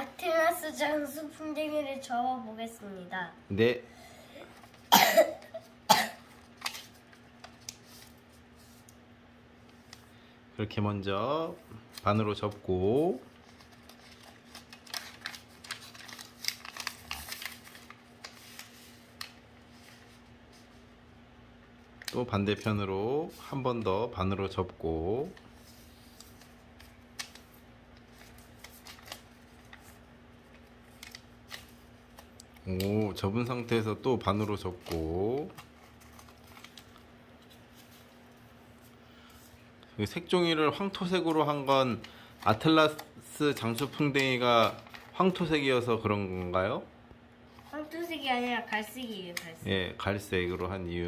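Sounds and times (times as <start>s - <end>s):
person coughing: 4.9s - 6.3s
paper crinkling while folded: 5.5s - 9.0s, 11.7s - 21.0s, 25.2s - 39.7s, 40.3s - 46.6s.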